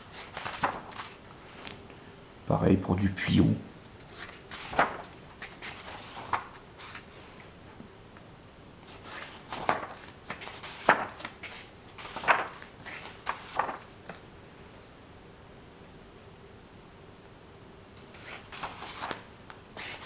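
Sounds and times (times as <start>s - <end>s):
book pages turning: 0.0s - 1.8s, 4.0s - 7.5s, 8.9s - 14.2s, 18.1s - 20.0s.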